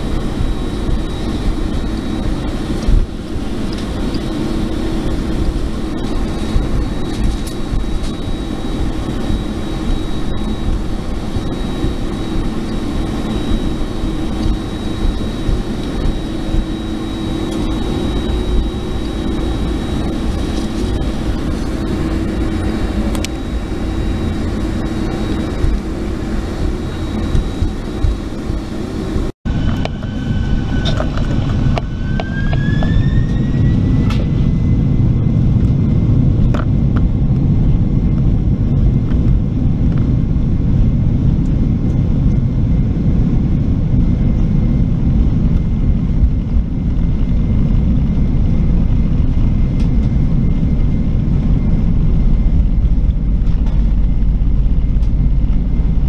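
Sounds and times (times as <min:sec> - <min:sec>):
jet engines whine and rumble: 0:00.0 - 0:56.0.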